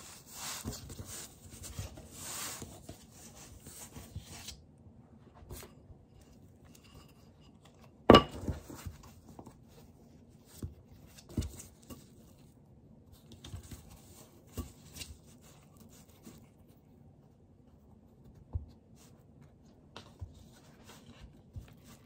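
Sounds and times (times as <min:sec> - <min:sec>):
baking paper rustling: 0:00.0 - 0:04.6.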